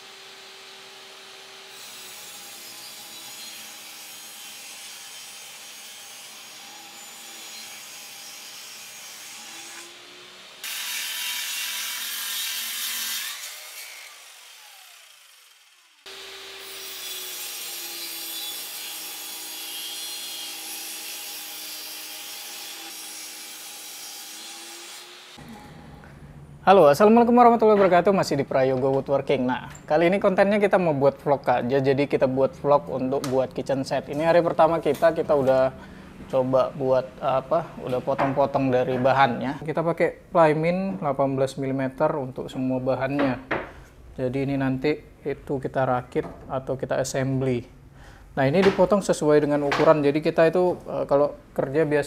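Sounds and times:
circular saw cutting board: 0.0s - 25.4s
table saw cutting plywood: 0.0s - 25.4s.

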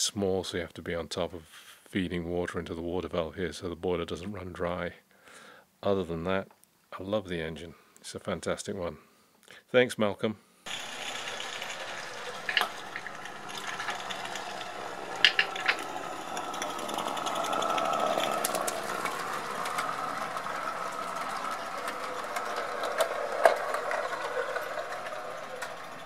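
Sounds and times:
model steam locomotive running: 10.7s - 26.0s.

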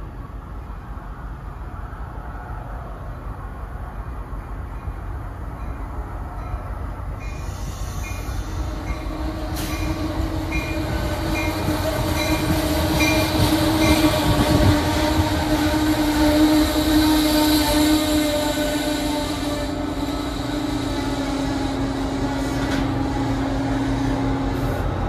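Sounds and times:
train rumbling with whine: 0.0s - 25.0s
train bell ringing: 4.4s - 14.3s.

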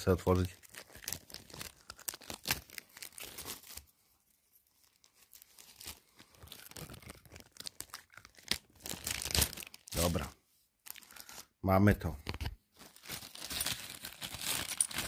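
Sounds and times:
packaging crinkling and rustling: 0.0s - 11.5s, 12.2s - 15.0s.

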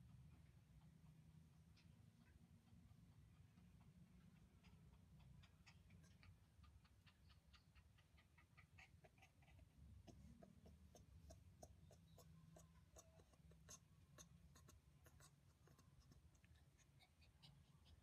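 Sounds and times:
low background hum: 0.0s - 18.0s
fingers scratching fur: 8.8s - 18.0s.

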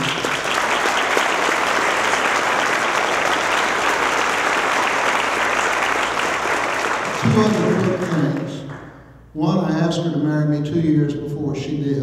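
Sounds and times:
people applauding: 0.0s - 9.0s.

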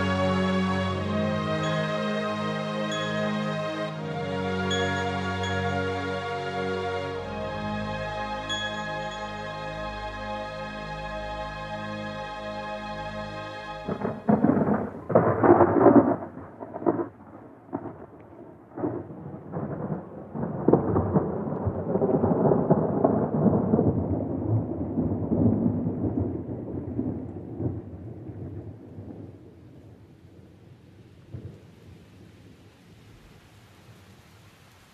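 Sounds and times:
held musical chord: 0.0s - 14.7s
rain: 0.0s - 34.9s
thunder: 13.9s - 30.6s.

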